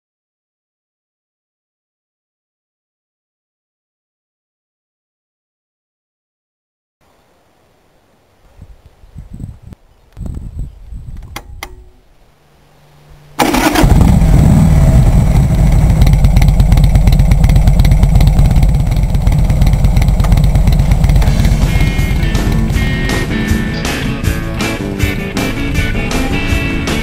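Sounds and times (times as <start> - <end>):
switch clicks: 11.2 - 12.0
starter motor whir: 13.4 - 22.7
motorcycle engine running: 13.4 - 27.0.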